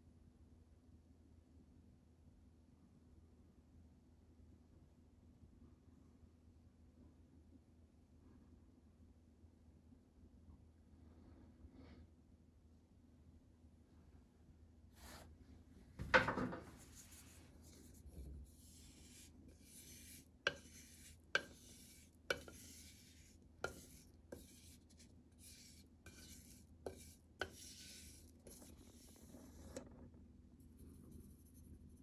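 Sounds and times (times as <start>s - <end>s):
metal pot scraping: 16.3s - 30.0s.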